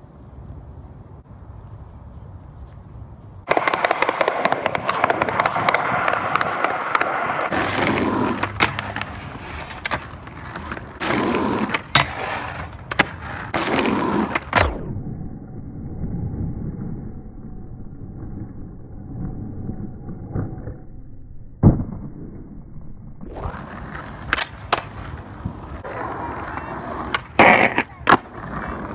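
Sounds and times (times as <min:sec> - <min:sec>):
skateboard rolling on asphalt: 0:03.0 - 0:14.8, 0:23.3 - 0:28.9.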